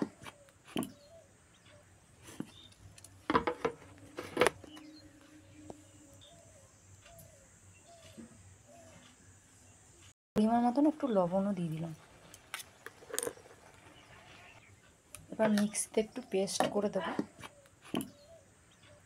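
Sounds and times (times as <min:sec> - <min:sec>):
faint bird chirps: 0:00.1 - 0:02.8, 0:04.6 - 0:10.1, 0:13.3 - 0:19.0
steel jar clicking and knocking: 0:12.8 - 0:13.7.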